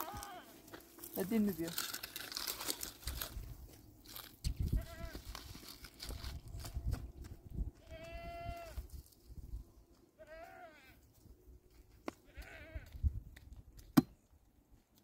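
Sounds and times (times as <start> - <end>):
livestock bleating: 0.0 - 0.6, 4.7 - 5.3, 7.8 - 8.8, 10.2 - 11.0, 12.2 - 13.0.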